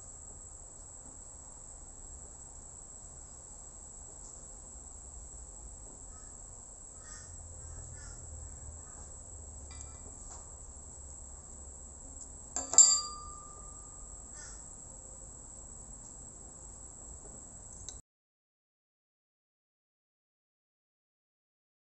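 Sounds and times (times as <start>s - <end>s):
sharp metallic click with ring: 9.7s - 10.0s, 12.6s - 14.0s
steady high-pitched tone: 12.6s - 14.8s.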